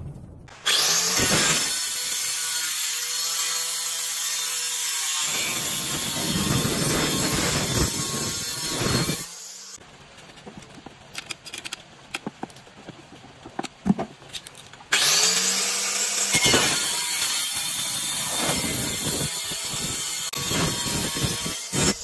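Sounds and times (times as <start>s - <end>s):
tile cutter grinding tile: 0.6s - 9.8s, 14.9s - 22.0s
wrench metal clicks: 11.1s - 12.3s.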